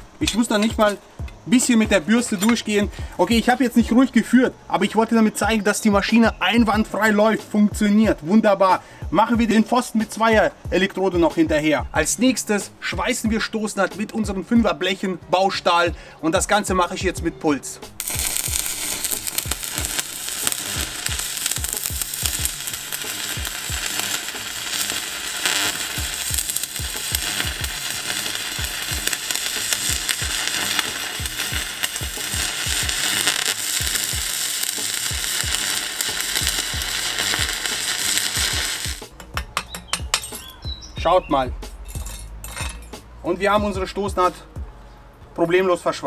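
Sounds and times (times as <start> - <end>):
welding arc crackling sizzle: 0.0 - 2.3, 18.0 - 39.1.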